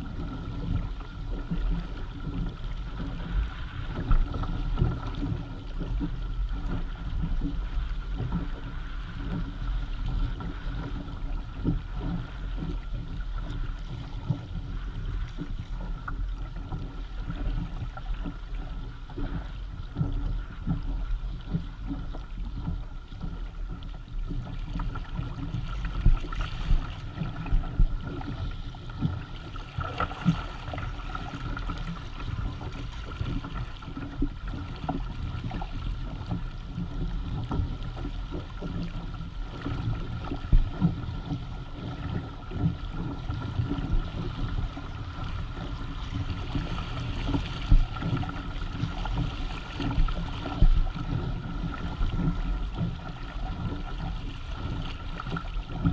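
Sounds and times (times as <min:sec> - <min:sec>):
water slapping against kayak hull: 0:00.0 - 0:55.9
wind on microphone: 0:24.5 - 0:55.9.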